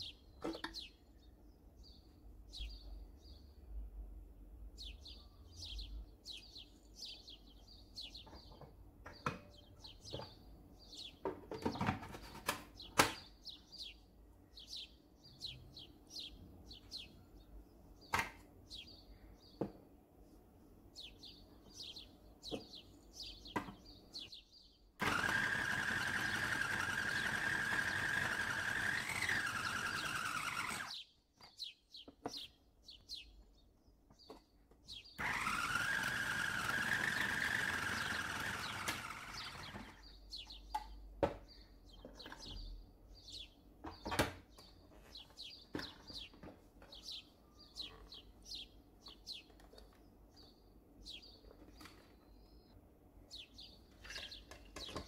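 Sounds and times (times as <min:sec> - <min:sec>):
small bird chirping: 0:00.0 - 0:03.8, 0:04.7 - 0:19.7, 0:20.3 - 0:25.2, 0:26.5 - 0:55.0
food processor motor humming: 0:25.0 - 0:31.0, 0:35.2 - 0:40.0.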